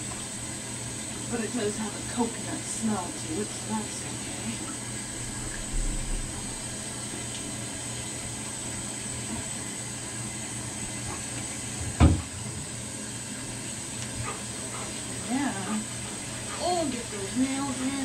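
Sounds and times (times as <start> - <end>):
water running from bathtub tap: 0.0 - 18.0
dull thump: 11.9 - 12.3.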